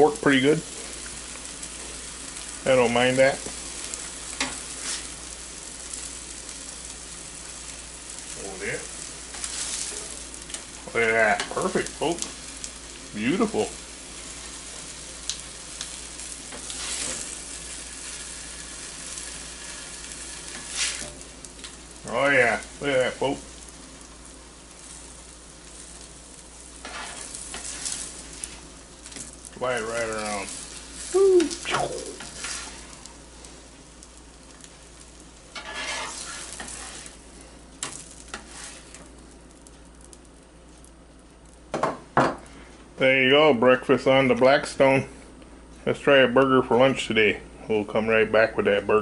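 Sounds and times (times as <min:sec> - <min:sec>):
eggs sizzling on a griddle: 0:00.0 - 0:45.0
metal spatula scraping griddle: 0:04.4 - 0:05.2, 0:16.5 - 0:21.2, 0:26.8 - 0:28.6, 0:32.2 - 0:33.0, 0:35.5 - 0:37.2, 0:37.8 - 0:39.0.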